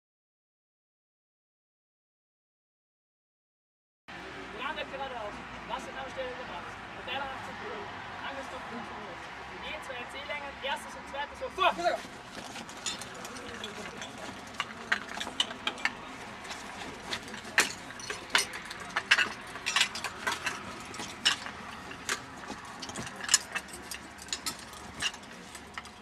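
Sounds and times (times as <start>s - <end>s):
metal hose couplings clicking: 12.3s - 26.0s.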